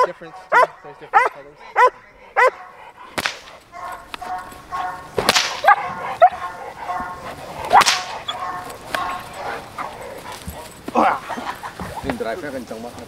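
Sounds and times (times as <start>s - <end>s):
dog barking and whining: 0.0s - 2.9s, 3.7s - 12.0s
whip cracking: 3.1s - 3.6s, 5.2s - 5.9s, 7.6s - 8.3s.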